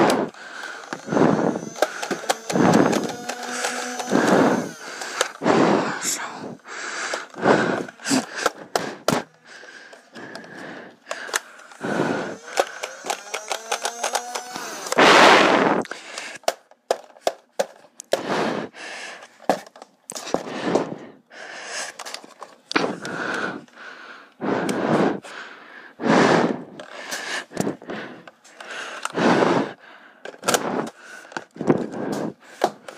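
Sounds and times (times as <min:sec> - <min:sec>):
sharp plastic clicks: 0:00.0 - 0:06.0, 0:06.7 - 0:18.3, 0:26.8 - 0:29.2, 0:30.2 - 0:32.9
loud breathing: 0:00.0 - 0:16.6, 0:18.0 - 0:19.4, 0:20.1 - 0:32.9
rising motor whine: 0:00.8 - 0:05.5, 0:11.8 - 0:15.0.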